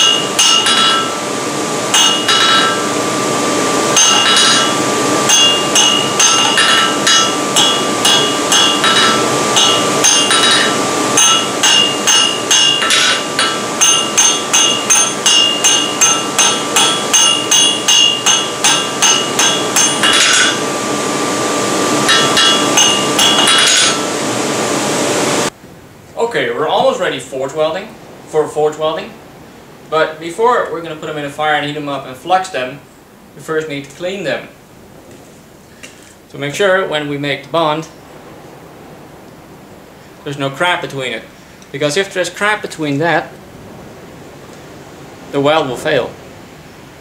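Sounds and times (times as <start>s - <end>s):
hammer ringing on anvil: 0.0s - 1.2s, 1.9s - 2.8s, 4.0s - 20.6s, 22.0s - 24.1s.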